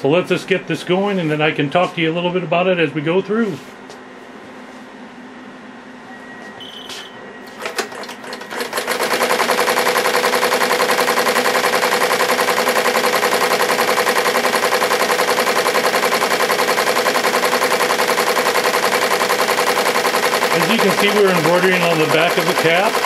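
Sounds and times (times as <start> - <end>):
short beep: 6.0 - 8.6
embroidery machine stitching: 7.6 - 23.0
machine clicks: 7.6 - 23.0.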